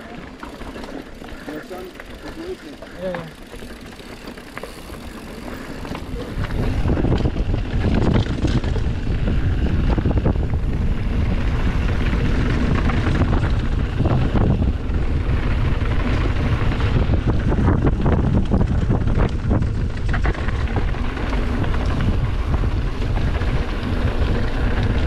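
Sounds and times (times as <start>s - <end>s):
bike clattering over bumps: 0.0s - 25.0s
wind on camera microphone: 5.8s - 25.0s.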